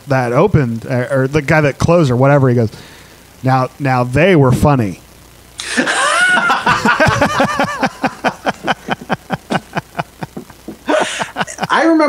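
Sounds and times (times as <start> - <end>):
men laughing hard: 5.6 - 12.0.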